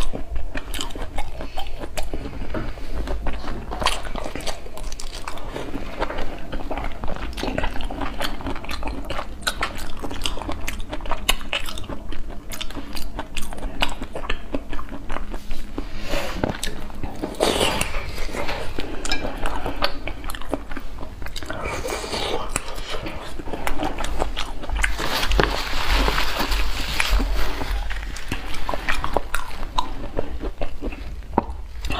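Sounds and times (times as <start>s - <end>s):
wet chewing: 0.0s - 31.9s
lips sucking: 14.2s - 25.0s.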